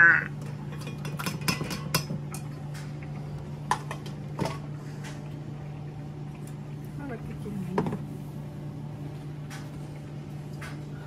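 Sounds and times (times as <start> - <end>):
dishes and utensils clattering: 0.4 - 2.6.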